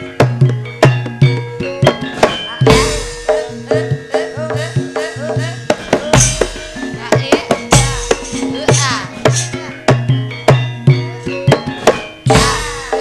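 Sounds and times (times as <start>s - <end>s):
gamelan ringing tones: 0.0s - 13.0s
hand-drum strokes: 0.0s - 13.0s.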